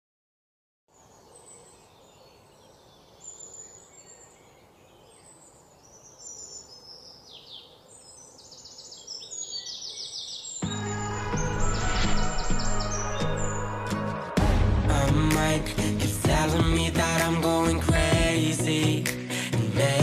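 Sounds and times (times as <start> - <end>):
soft steady outdoor hiss: 0.9 - 10.6
birds chirping and trilling: 0.9 - 19.0
music with low bass: 10.7 - 20.0.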